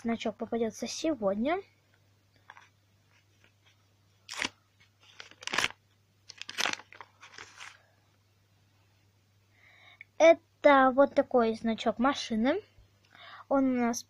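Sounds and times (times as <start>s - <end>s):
paper rustling and crinkling: 2.5s - 7.8s.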